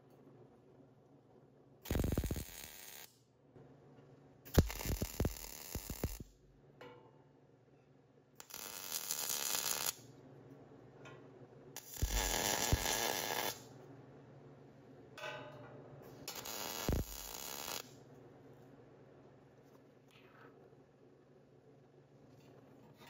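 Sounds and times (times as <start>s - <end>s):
welder crackling hiss: 1.9s - 3.1s, 4.5s - 6.3s, 8.4s - 10.0s, 11.8s - 13.7s, 16.3s - 17.9s.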